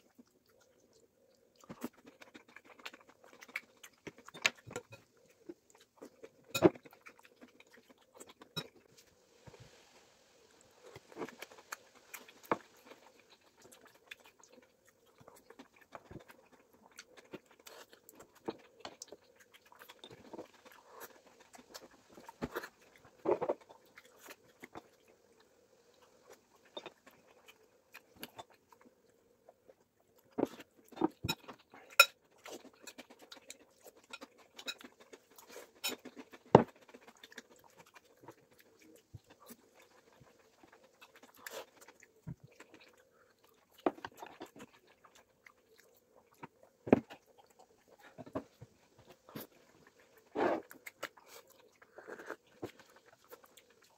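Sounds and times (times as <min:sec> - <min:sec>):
people chewing: 0:00.0 - 0:09.8, 0:10.8 - 0:53.9.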